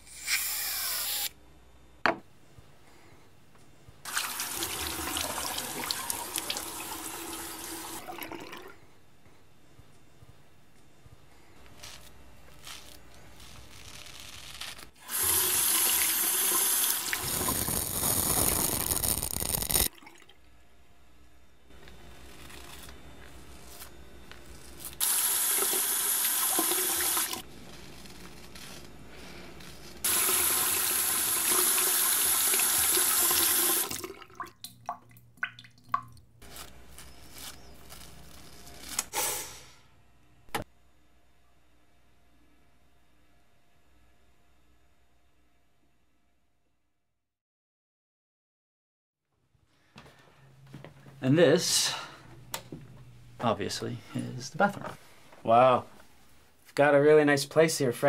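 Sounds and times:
sink tap running: 15.0 - 18.4, 25.0 - 27.4, 30.0 - 34.1
water drips: 33.9 - 36.3.

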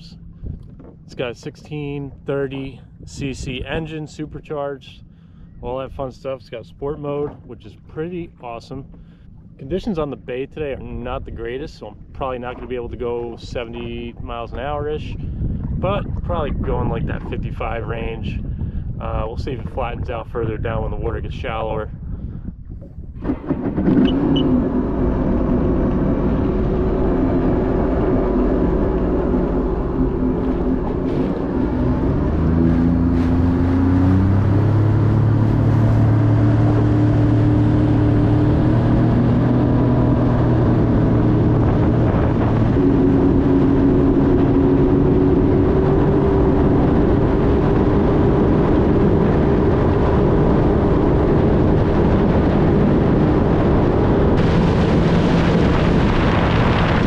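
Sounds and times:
jet ski engine running: 0.0 - 21.6, 22.5 - 57.0
wind noise: 0.0 - 57.0
water rushing: 23.2 - 57.0.

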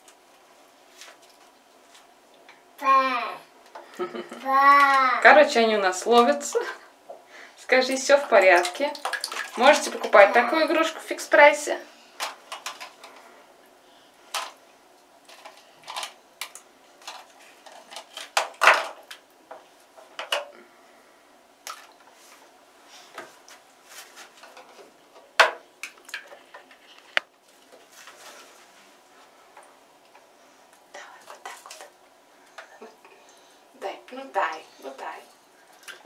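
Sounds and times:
plastic knocks and clatters: 15.3 - 20.5, 24.4 - 26.8.

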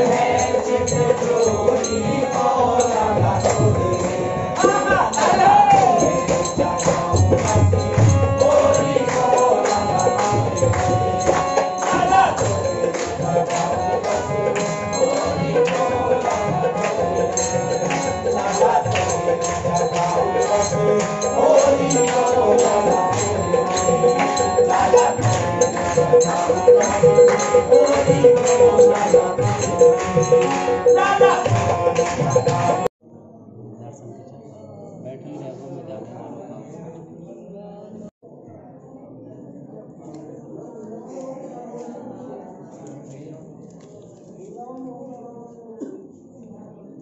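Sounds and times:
hand percussion beat: 0.0 - 32.9
men singing devotional song: 0.0 - 32.9
harmonium: 6.0 - 32.9.

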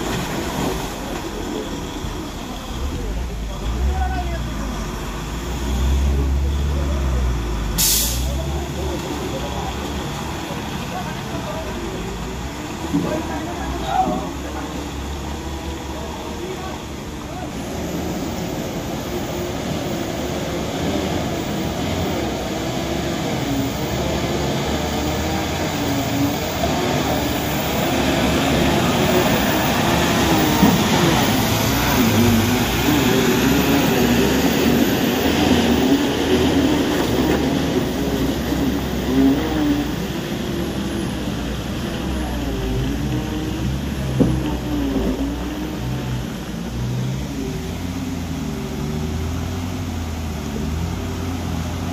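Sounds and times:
loud rushing noise: 17.6 - 47.8.

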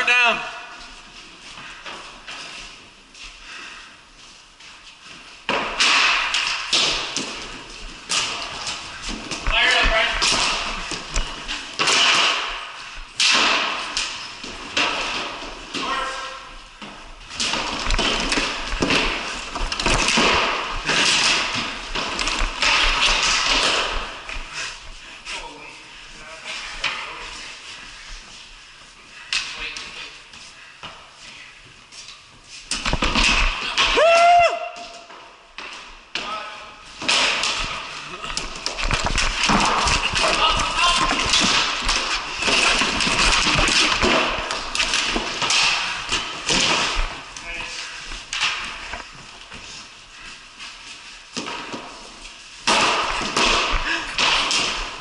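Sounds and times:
hockey sticks and ball knocking: 5.4 - 24.8, 32.7 - 36.4, 37.0 - 49.8, 51.3 - 55.0.

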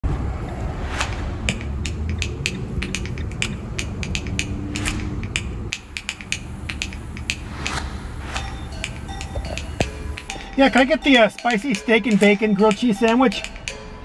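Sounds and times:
car engine and tyre rumble: 0.0 - 10.8
sharp clicks: 0.9 - 13.8.

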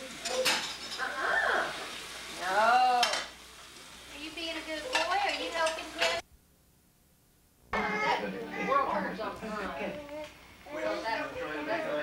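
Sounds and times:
dishes clattering in a rack: 0.2 - 1.0.

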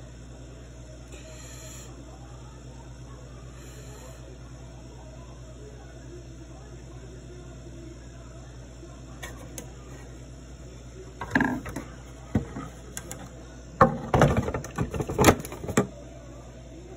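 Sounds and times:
steady low hum: 0.0 - 16.9
fridge parts knocking and clattering: 11.2 - 15.9.

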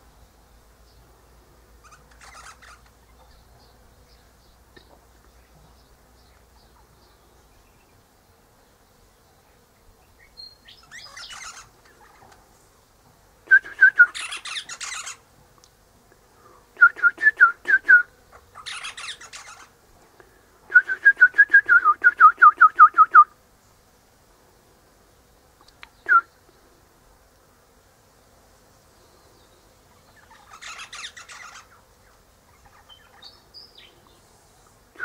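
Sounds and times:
high scratchy bird chatter: 1.8 - 8.0, 10.0 - 12.5, 14.0 - 15.3, 18.2 - 19.8, 29.9 - 34.8.

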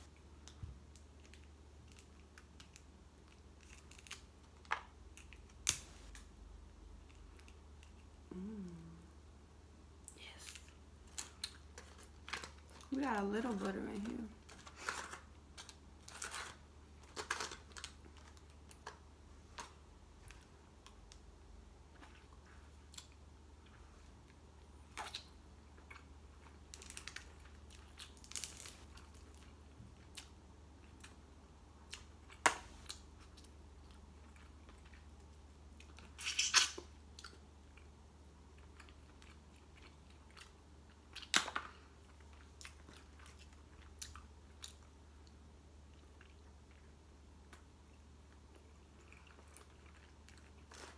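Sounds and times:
chewing and mouth noises: 31.8 - 50.9.

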